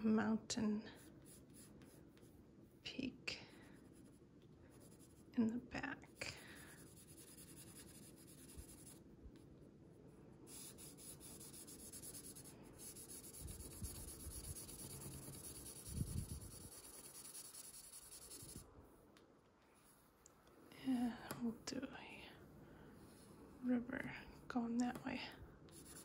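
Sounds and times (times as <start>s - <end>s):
pencil scratching on paper: 0.9s - 2.4s, 3.7s - 5.4s, 6.0s - 9.0s, 10.5s - 18.6s, 25.7s - 26.0s.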